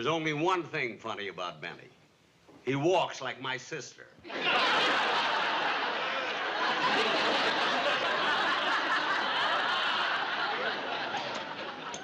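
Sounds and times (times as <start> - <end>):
studio audience laughing: 4.3 - 12.0.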